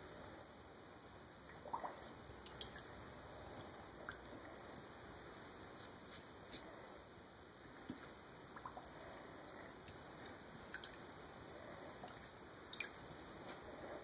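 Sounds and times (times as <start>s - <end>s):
puppy splashing water in bowl: 1.5s - 2.9s, 7.8s - 13.1s.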